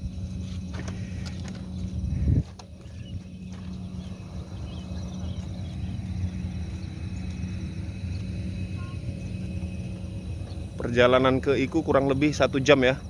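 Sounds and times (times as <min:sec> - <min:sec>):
low mechanical hum: 0:00.0 - 0:13.0
faint bird chirps: 0:00.9 - 0:09.5.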